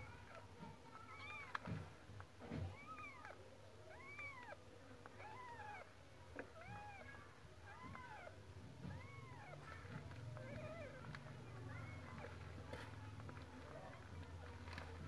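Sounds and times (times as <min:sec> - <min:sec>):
kittens mewing faintly: 0:02.6 - 0:12.7.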